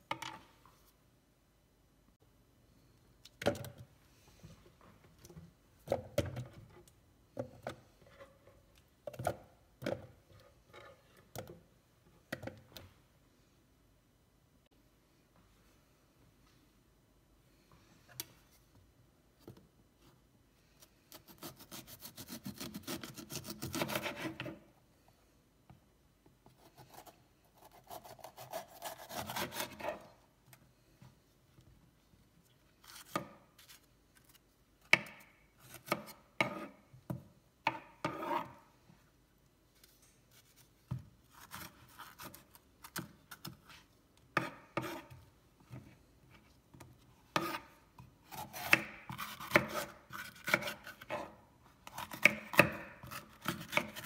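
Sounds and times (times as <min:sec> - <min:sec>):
knife slicing pepper: 0:21.1 - 0:24.5, 0:26.7 - 0:30.0, 0:47.4 - 0:54.0.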